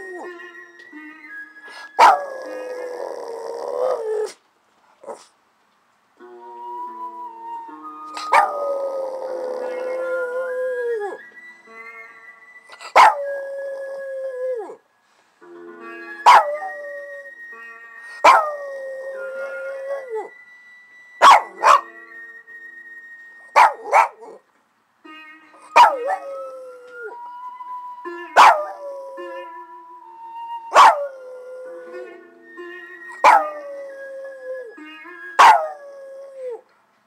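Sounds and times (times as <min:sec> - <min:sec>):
dog howling: 0:08.2 - 0:11.2, 0:18.2 - 0:20.3, 0:30.6 - 0:32.1.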